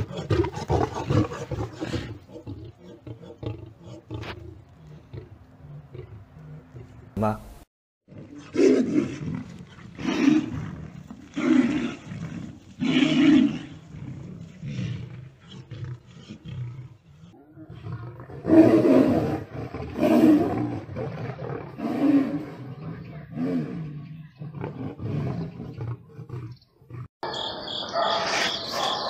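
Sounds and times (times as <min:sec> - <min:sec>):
big cat roaring: 0:00.0 - 0:07.0, 0:08.1 - 0:27.1.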